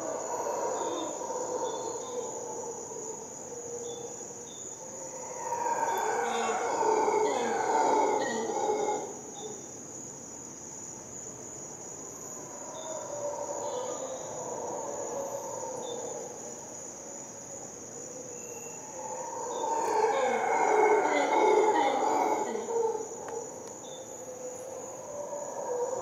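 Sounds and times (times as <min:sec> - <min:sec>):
howler monkeys roaring: 0:00.0 - 0:03.8, 0:05.0 - 0:09.5, 0:12.4 - 0:16.6, 0:18.8 - 0:23.6, 0:24.3 - 0:26.0
high-pitched insect trill: 0:00.0 - 0:26.0.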